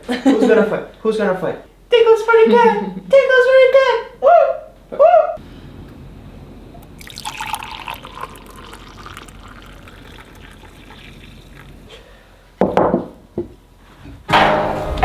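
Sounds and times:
coffee pouring into mugs: 0:06.8 - 0:12.0.

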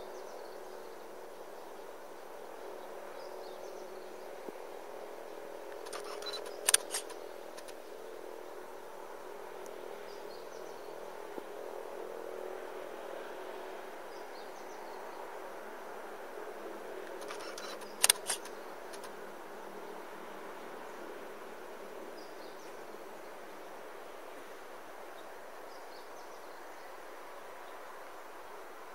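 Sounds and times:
low outdoor hum: 0:00.0 - 0:28.9
faint bird chirps: 0:05.8 - 0:07.1, 0:17.2 - 0:18.5
camera handling clicks: 0:05.8 - 0:07.8, 0:17.1 - 0:19.1.

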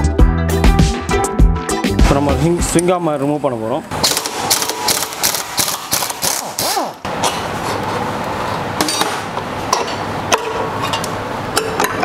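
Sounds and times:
pneumatic impact wrench: 0:04.0 - 0:07.4.

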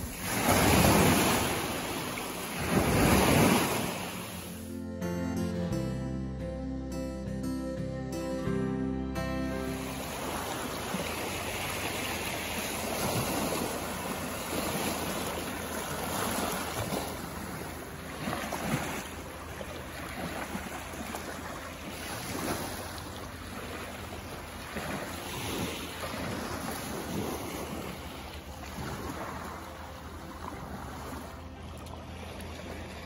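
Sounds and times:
small waves washing over rocks: 0:00.0 - 0:04.6, 0:10.0 - 0:31.6.

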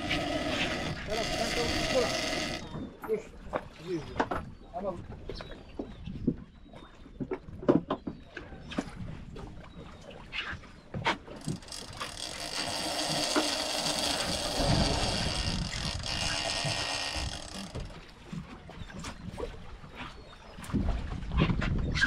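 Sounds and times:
fishing reel drag buzzing: 0:00.0 - 0:02.8, 0:11.4 - 0:18.0
rod and reel clicks: 0:00.0 - 0:02.8, 0:11.0 - 0:18.4.

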